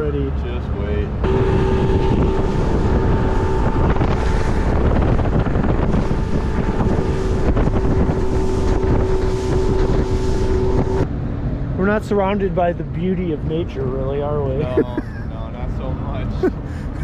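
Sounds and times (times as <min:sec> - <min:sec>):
wind buffeting microphone: 0:00.6 - 0:13.0
outboard motor running: 0:01.0 - 0:11.0.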